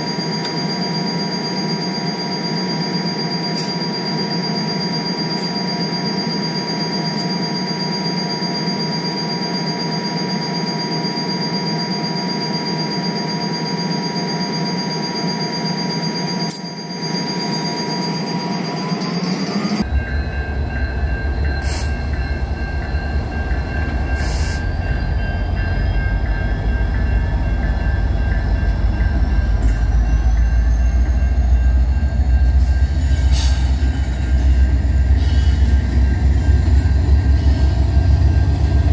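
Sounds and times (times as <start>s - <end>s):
high whining tones: 15.2s - 38.9s
locomotive engine drone: 17.4s - 38.9s
deep train rumble: 19.4s - 38.9s.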